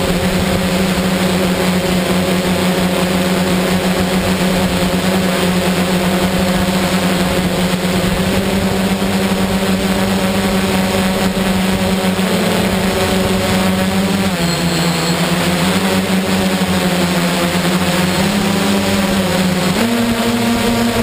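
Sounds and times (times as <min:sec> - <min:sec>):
wind noise: 0:00.0 - 0:01.6
motor and propellers humming: 0:00.0 - 0:21.0.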